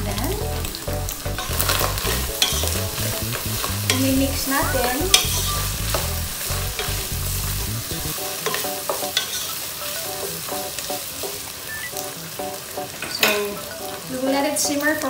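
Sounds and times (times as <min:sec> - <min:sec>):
low hum: 0:00.0 - 0:08.1
meat sizzling in a pot: 0:00.0 - 0:15.0
wooden spatula stirring and scraping: 0:00.1 - 0:09.7.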